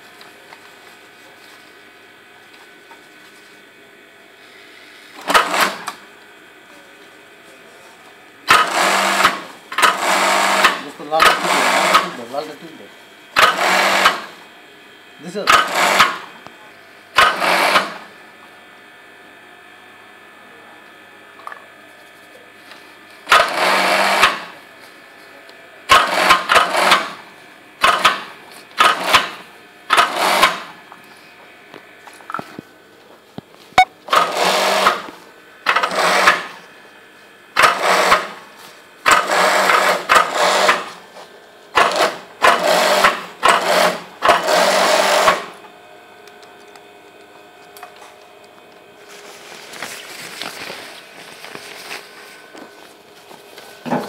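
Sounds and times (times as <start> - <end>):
steady hum: 0.0 - 54.0
sewing machine stitching: 5.2 - 6.0, 8.5 - 12.2, 13.4 - 14.3, 15.4 - 16.3, 17.2 - 18.0, 23.3 - 24.5, 25.9 - 27.2, 27.8 - 30.7, 34.1 - 35.1, 35.7 - 36.5, 37.6 - 38.4, 39.0 - 40.9, 41.8 - 45.5.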